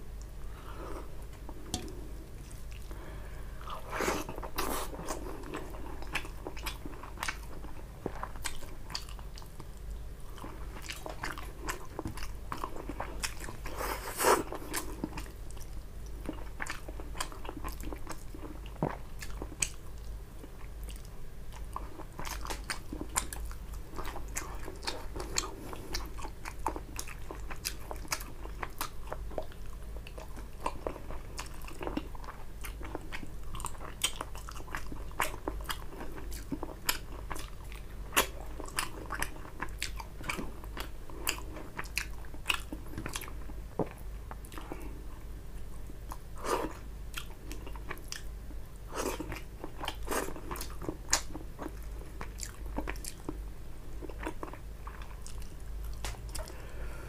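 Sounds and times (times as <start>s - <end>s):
chewing food: 1.3s - 45.0s, 46.0s - 48.3s, 48.9s - 56.7s.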